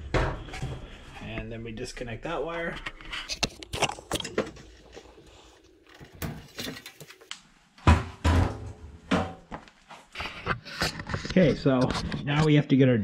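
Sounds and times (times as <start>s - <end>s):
sheet metal knocks and thuds: 7.8s - 9.5s.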